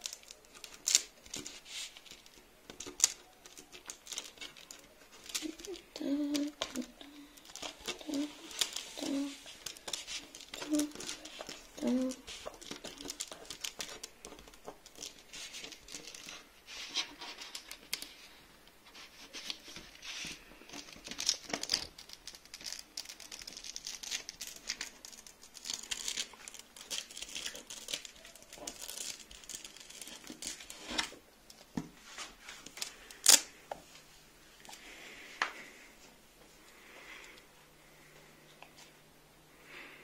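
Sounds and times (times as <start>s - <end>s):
beeswax sheet crackling: 0.0s - 39.0s.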